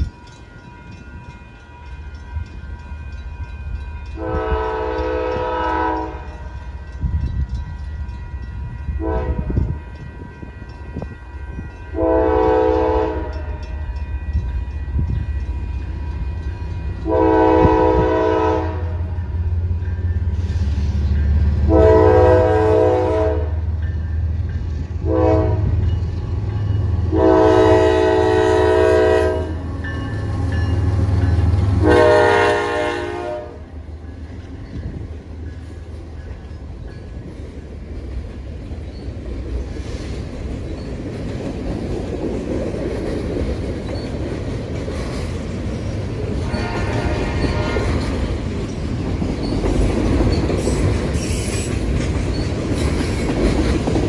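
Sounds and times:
locomotive air horn blasts: 0:04.2 - 0:06.5, 0:09.0 - 0:10.1, 0:11.5 - 0:13.8, 0:17.0 - 0:19.2, 0:21.7 - 0:23.7, 0:25.0 - 0:25.8, 0:27.1 - 0:29.7, 0:31.8 - 0:33.7, 0:46.4 - 0:48.1.

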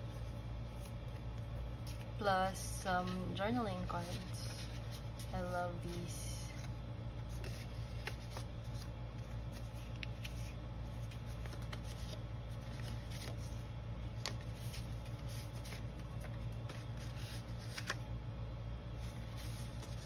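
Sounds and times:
low hum: 0:00.0 - 0:20.0
paper cards rustling: 0:00.1 - 0:18.1, 0:18.9 - 0:20.0.

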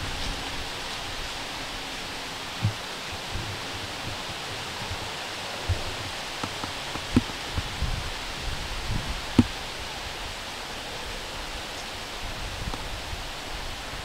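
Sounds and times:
outdoor air hiss: 0:00.0 - 0:14.0
soft low thumps and clicks: 0:02.6 - 0:08.0, 0:08.9 - 0:09.6.

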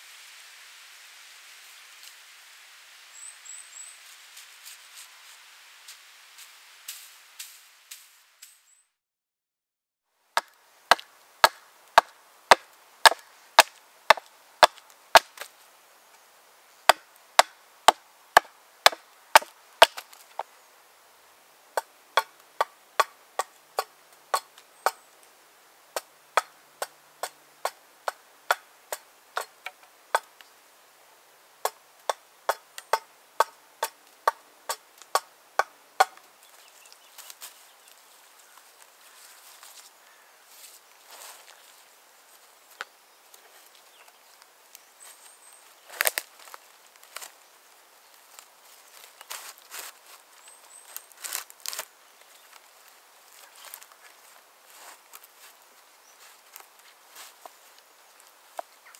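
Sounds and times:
hand axe chopping wood: 0:10.4 - 0:15.5, 0:16.9 - 0:20.1.

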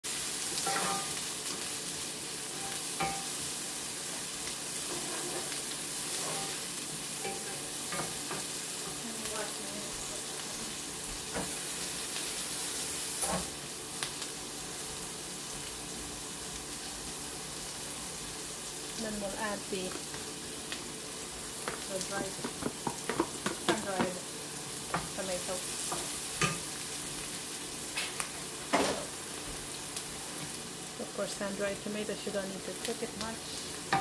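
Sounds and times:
vegetables sizzling in skillet: 0:00.0 - 0:34.0
wooden spatula scraping pan: 0:04.8 - 0:06.6.

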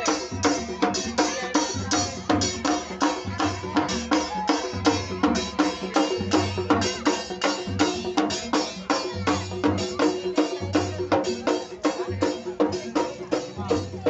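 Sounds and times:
barrel drums beaten fast: 0:00.0 - 0:14.0.

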